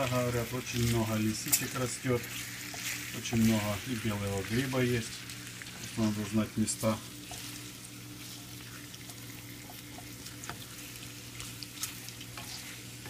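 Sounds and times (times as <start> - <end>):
mushrooms sizzling in a pan: 0.0 - 13.0
wooden spatula scraping a pan: 10.2 - 13.0.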